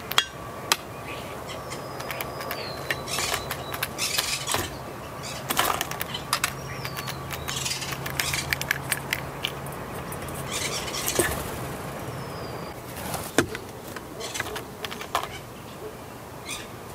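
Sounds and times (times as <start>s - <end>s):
peanut shells rattling on metal: 5.5s - 10.5s.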